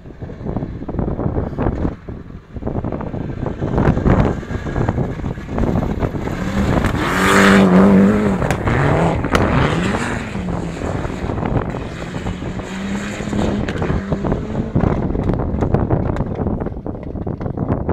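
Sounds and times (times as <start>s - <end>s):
wind buffeting microphone: 0.0s - 17.9s
rally car engine racing past: 3.7s - 15.1s.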